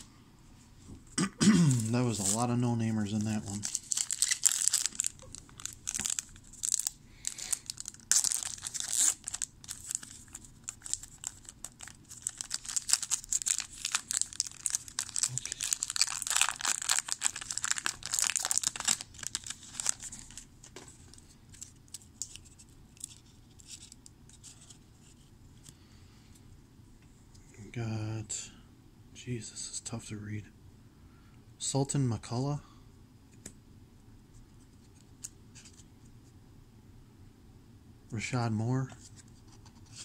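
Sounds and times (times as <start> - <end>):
wrapper tearing and crinkling: 1.7 - 20.4.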